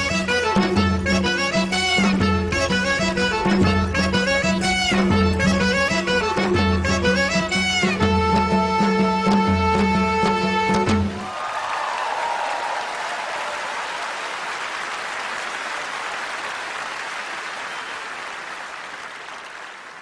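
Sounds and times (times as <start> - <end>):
audience applauding: 11.1 - 20.0.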